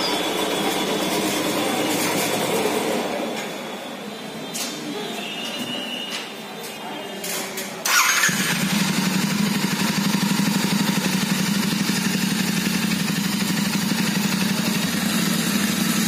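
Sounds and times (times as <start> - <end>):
motorcycle engine idling: 7.9 - 16.0.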